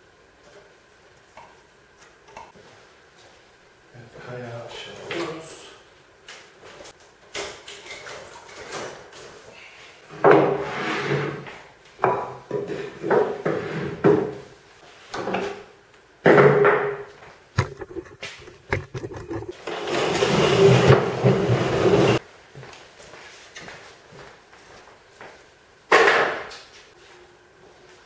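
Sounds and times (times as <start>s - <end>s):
wooden pieces knocking and thudding: 17.6s - 19.6s.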